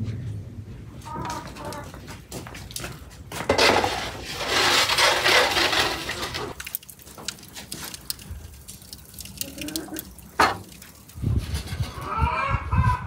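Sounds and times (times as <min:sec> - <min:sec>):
metal pan scraping on brick: 0:03.4 - 0:06.6, 0:11.3 - 0:12.1.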